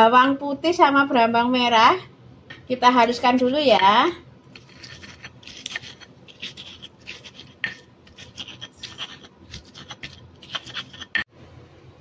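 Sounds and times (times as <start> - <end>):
pestle grinding in stone mortar: 4.5 - 11.3.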